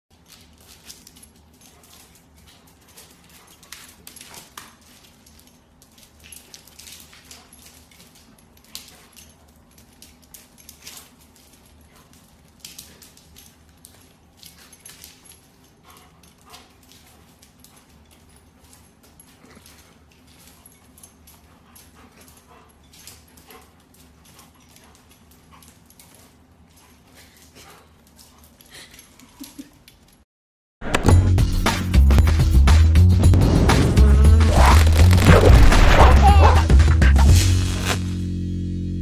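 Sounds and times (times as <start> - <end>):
dog claws clicking on wood floor: 0.1 - 28.5.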